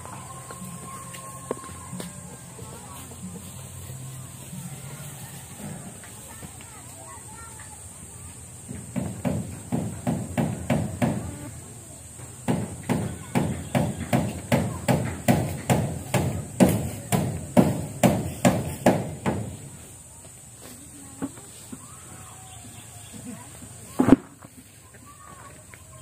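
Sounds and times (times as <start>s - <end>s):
hand tool striking hard: 8.7s - 11.3s, 12.4s - 19.6s.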